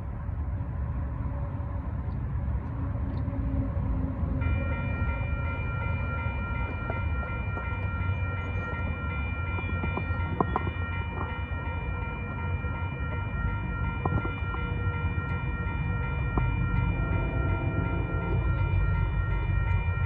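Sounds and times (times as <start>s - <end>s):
railroad crossing bell ringing: 4.2s - 20.0s.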